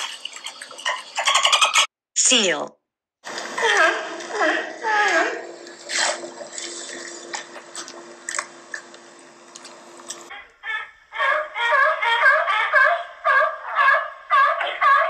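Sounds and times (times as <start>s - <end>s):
water splashing: 0.0s - 1.8s
sea lions barking: 10.3s - 15.0s.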